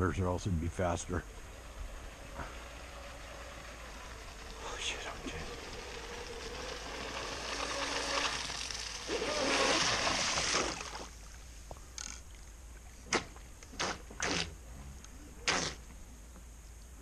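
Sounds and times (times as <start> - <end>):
rc boat motor and spray: 0.8 - 11.2
short sharp bursts: 15.4 - 15.8.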